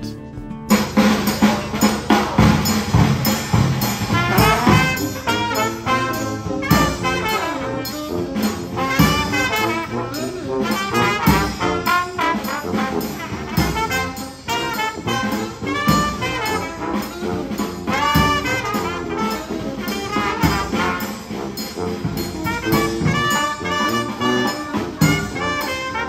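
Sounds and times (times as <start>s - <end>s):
jazz music with brass horns: 0.0s - 26.0s.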